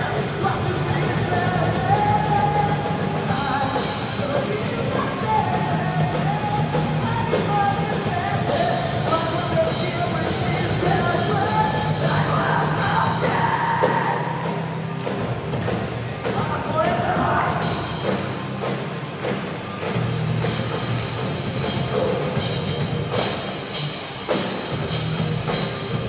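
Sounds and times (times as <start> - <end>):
person singing into a microphone: 0.0 - 14.3
drums with cymbals: 0.0 - 16.4, 17.5 - 26.0
electric guitars: 0.0 - 26.0
rock band playing: 0.0 - 26.0.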